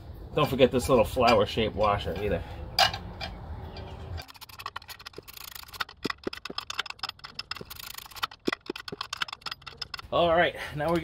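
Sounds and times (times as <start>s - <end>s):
hand ratchet clicking: 4.2s - 10.1s.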